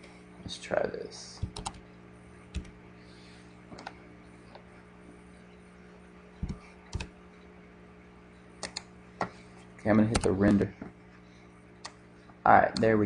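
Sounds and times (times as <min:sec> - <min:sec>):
low electrical hum: 0:00.0 - 0:13.0
computer keys and mouse clicks: 0:01.4 - 0:01.8, 0:02.5 - 0:02.8, 0:06.4 - 0:07.1, 0:08.6 - 0:08.9, 0:10.1 - 0:10.4.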